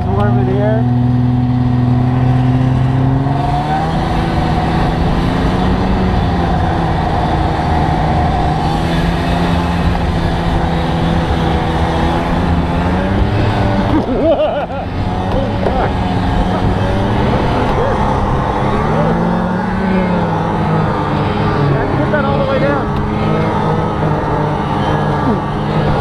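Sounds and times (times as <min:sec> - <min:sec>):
snowmobile engine running: 0:00.0 - 0:26.0
rushing noise over snow: 0:01.4 - 0:26.0.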